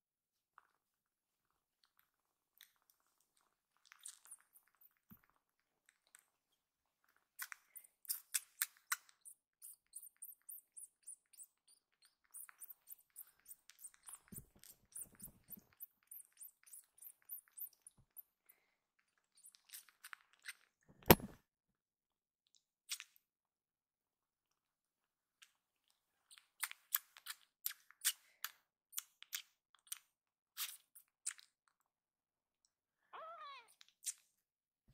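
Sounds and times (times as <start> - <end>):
kitten sucking on finger clicks: 7.4 - 11.5.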